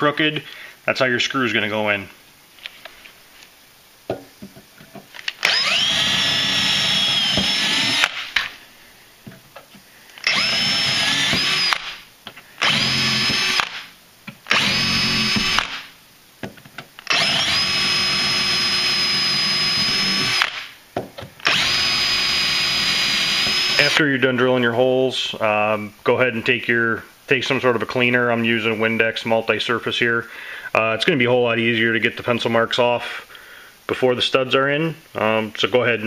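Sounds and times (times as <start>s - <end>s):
power drill whining: 5.4s - 8.3s, 10.2s - 12.0s, 12.6s - 13.9s, 14.5s - 15.9s, 17.0s - 20.7s, 21.4s - 24.0s.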